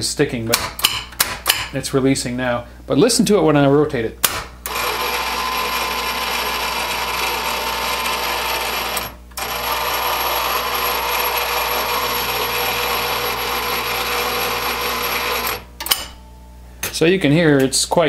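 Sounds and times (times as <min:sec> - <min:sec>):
motor and gears grinding: 0:04.7 - 0:15.6.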